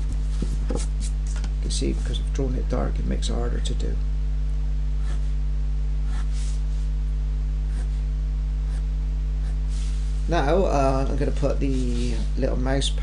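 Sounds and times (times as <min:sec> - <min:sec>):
low electrical hum: 0:00.0 - 0:13.0
pencil scratching on paper: 0:05.0 - 0:05.3, 0:06.0 - 0:06.6, 0:07.7 - 0:08.0, 0:08.7 - 0:10.1.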